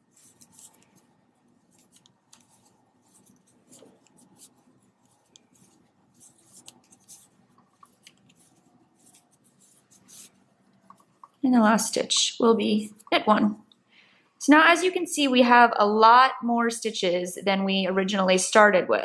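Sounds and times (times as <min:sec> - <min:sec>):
knitting needles clicking: 0:01.7 - 0:13.8.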